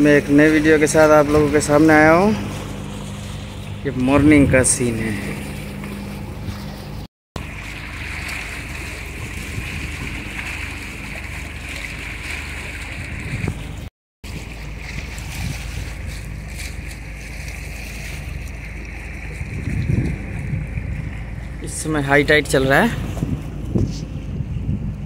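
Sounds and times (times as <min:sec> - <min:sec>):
water noise: 0:00.0 - 0:25.0
wind: 0:00.0 - 0:25.0.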